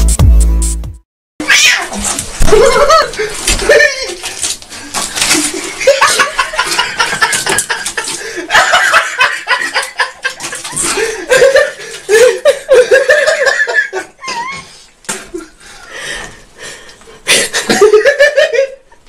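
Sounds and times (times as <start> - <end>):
people laughing: 2.5 - 4.2, 5.3 - 14.2, 17.5 - 18.8.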